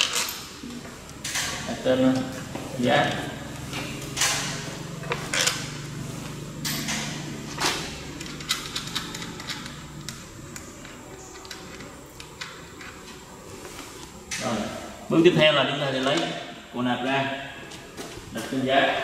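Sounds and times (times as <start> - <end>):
hand tools clicking on metal parts: 6.6 - 10.2.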